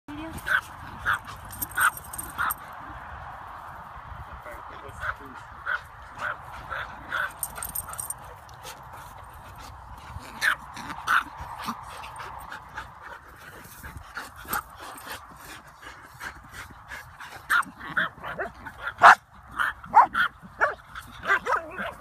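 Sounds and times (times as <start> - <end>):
dogs yipping and whining: 17.4 - 22.0.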